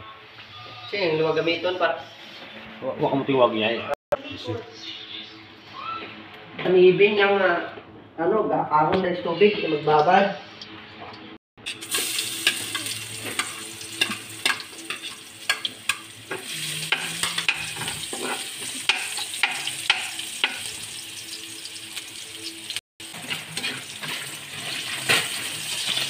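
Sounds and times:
garlic sizzling in hot oil: 11.6 - 26.0
metal spoon scraping pan: 12.4 - 20.7, 23.1 - 26.0.

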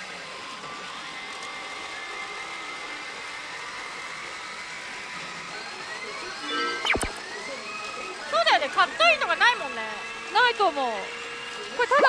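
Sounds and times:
whirring din of gaming machines: 0.0 - 12.0
long electronic tone dipping: 6.4 - 7.2.

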